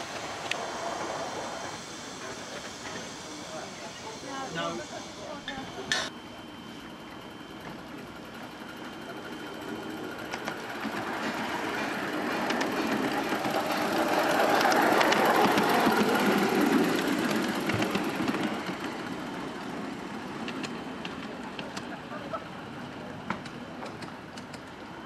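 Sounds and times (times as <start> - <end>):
model steam locomotive running: 0.0 - 25.0.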